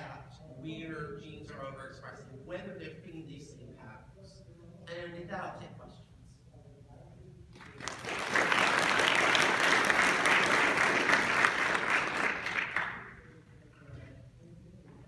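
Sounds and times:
audience applause: 7.6s - 13.2s.

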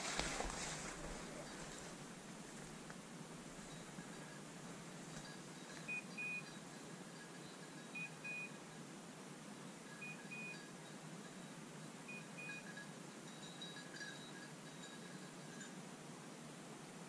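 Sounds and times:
faint steady hiss: 0.0s - 17.0s
electronic collar beeps: 5.8s - 6.6s, 7.9s - 8.6s, 10.0s - 10.7s, 12.1s - 12.8s.

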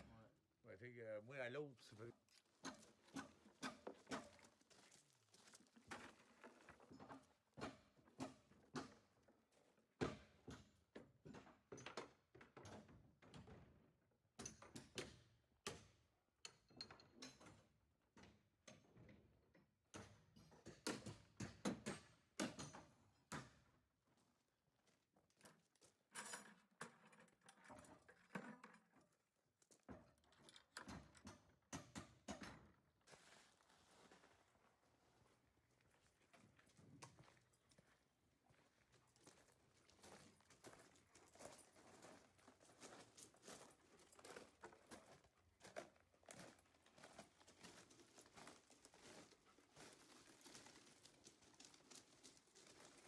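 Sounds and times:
knocks on plywood wall forms: 19.9s - 23.6s.

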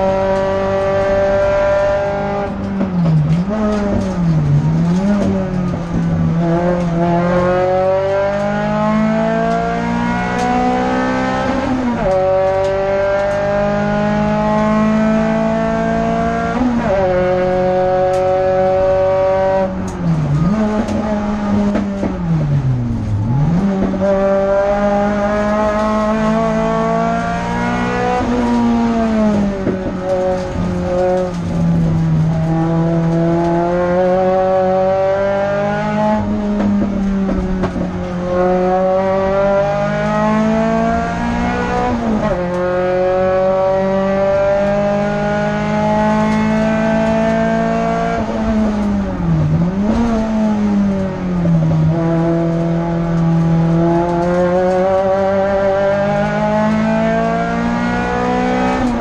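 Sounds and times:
race car engine accelerating: 0.0s - 59.0s.

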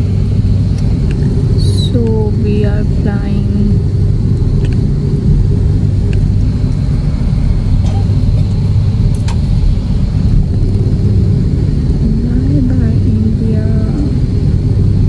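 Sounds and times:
faint high whine: 0.0s - 15.0s
jet engines and wheels rumbling: 0.0s - 15.0s.

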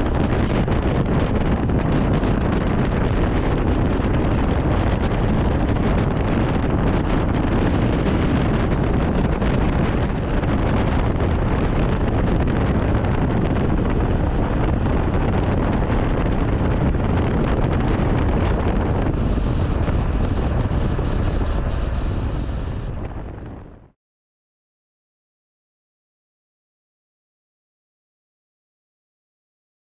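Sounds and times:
wind rushing over microphone: 0.0s - 24.0s.

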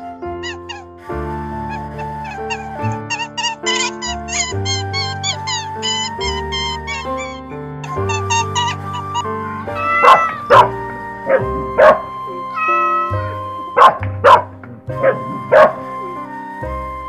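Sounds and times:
background music: 0.0s - 17.0s
dog barking: 9.7s - 13.1s, 13.8s - 15.8s.

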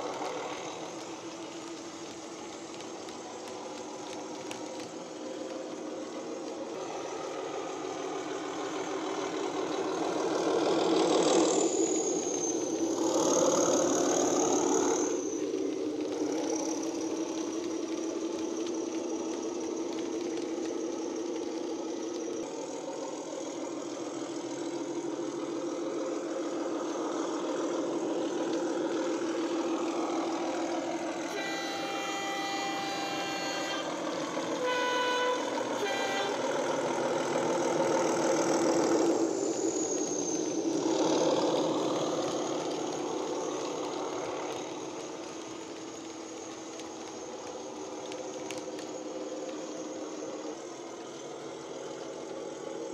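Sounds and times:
diesel engine through small speaker: 0.0s - 18.6s, 20.5s - 47.4s
two-tone horn: 31.3s - 36.9s.

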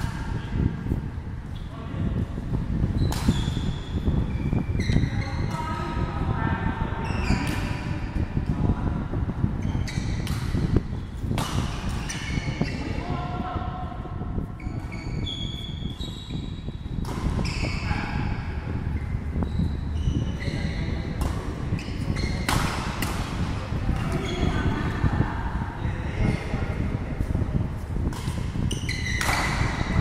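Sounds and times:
shoe squeaks: 2.9s - 5.8s, 7.0s - 8.0s, 9.6s - 11.2s, 11.8s - 13.0s, 14.6s - 18.4s, 19.0s - 22.6s, 24.0s - 24.8s, 28.6s - 30.0s
rackets hitting shuttlecock: 3.0s - 3.7s, 10.2s - 12.3s, 21.2s - 21.6s, 22.2s - 24.2s, 28.0s - 29.9s.

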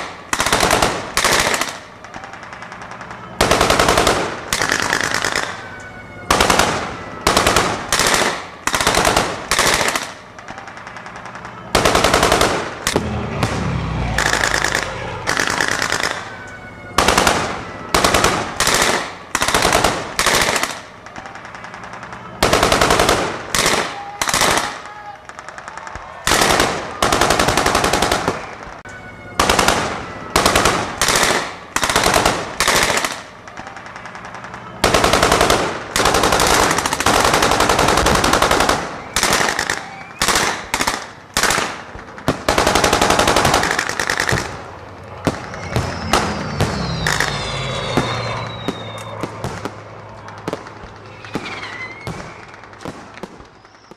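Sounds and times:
machine gun firing automatic bursts: 0.0s - 5.6s, 6.3s - 13.0s, 14.2s - 16.3s, 17.0s - 28.8s, 29.4s - 44.6s.

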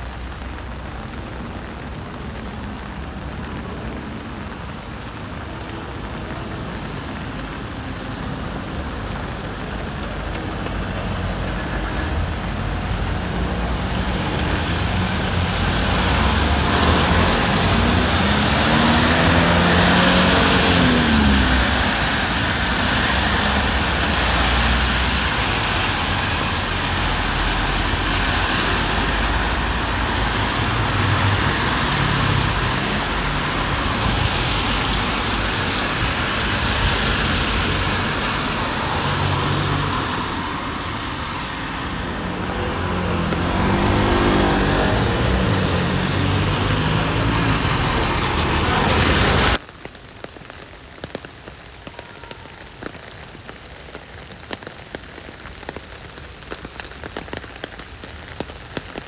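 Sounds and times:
raindrops tapping on window: 0.0s - 13.9s
bus engine and road noise: 0.0s - 51.9s, 52.5s - 59.0s
rain: 0.0s - 59.0s.

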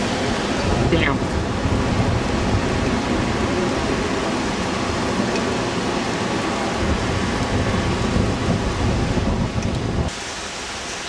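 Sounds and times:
heavy rain and wind: 0.0s - 11.0s
low rumble of thunder: 0.6s - 4.1s, 6.8s - 10.1s.

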